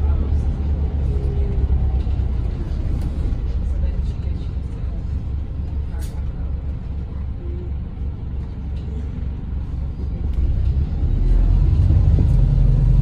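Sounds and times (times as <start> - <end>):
bus diesel engine rumble: 0.0 - 13.0.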